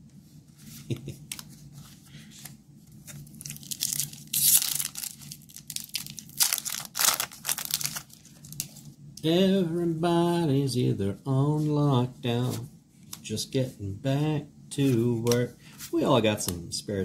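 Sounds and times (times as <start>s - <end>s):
foil wrapper tearing and crinkling: 3.3s - 8.7s.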